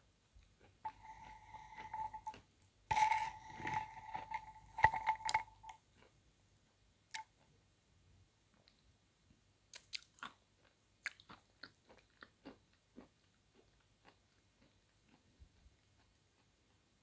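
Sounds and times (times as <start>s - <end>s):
metal spoon scraping ceramic bowl: 0.8s - 5.8s.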